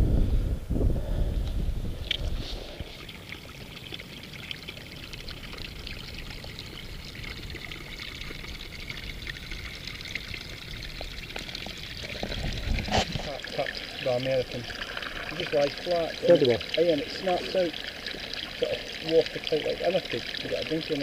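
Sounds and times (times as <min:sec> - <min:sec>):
water trickling over stones: 0:01.9 - 0:21.0
water drips: 0:02.0 - 0:21.0.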